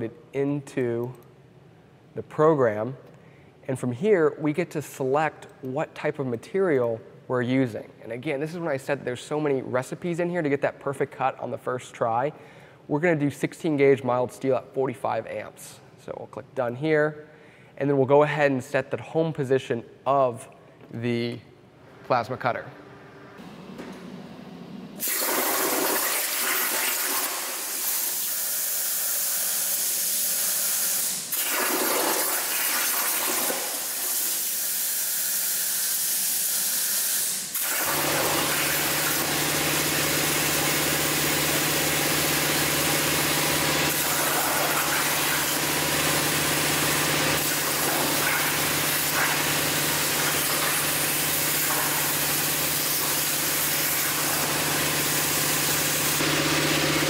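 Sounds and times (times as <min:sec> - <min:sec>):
plasma torch hissing: 0:25.0 - 0:39.4, 0:43.9 - 0:45.9, 0:47.4 - 0:56.2.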